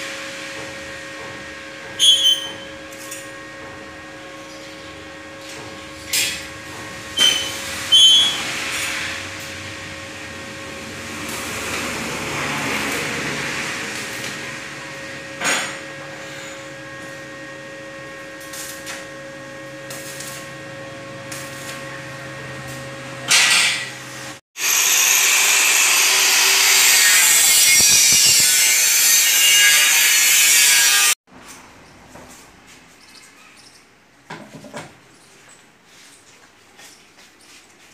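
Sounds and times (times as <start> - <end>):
welding arc crackling: 7.0 - 15.2, 18.0 - 22.8.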